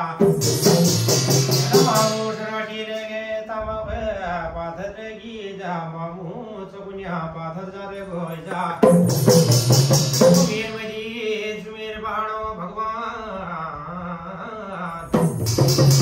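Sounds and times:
man singing devotional chant: 0:00.0 - 0:00.4, 0:01.2 - 0:09.1, 0:10.2 - 0:15.7
drumming with metallic percussion: 0:00.0 - 0:03.1, 0:08.5 - 0:11.1, 0:15.0 - 0:16.0.

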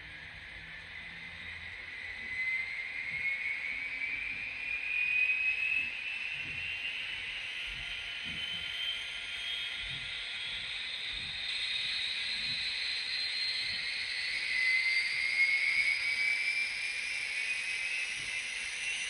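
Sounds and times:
high turbine whine: 0:00.0 - 0:19.0.

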